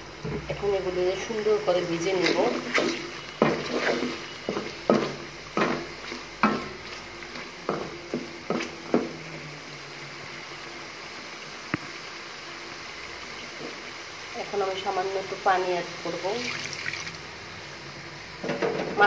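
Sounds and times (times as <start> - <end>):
fish sizzling in oil: 0.0 - 19.0
wooden spatula knocking on pan: 2.2 - 6.8, 7.6 - 9.2.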